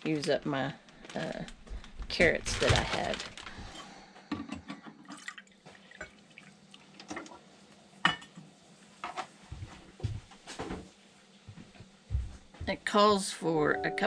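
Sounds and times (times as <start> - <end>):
water dripping: 5.1 - 7.4.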